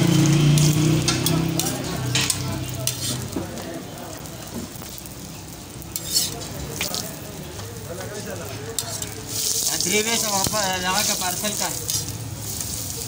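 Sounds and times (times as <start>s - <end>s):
flatbread sizzling on griddle: 0.0s - 13.0s
metal tongs clicking on griddle: 0.5s - 3.4s, 4.8s - 7.1s, 8.0s - 12.8s.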